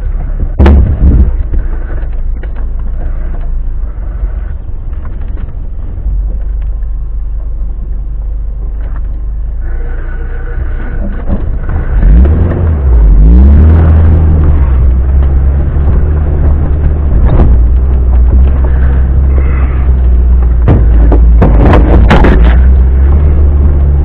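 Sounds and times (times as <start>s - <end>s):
vehicle knocks: 0.4s - 2.8s, 15.4s - 23.6s
car engine revving: 9.5s - 24.0s.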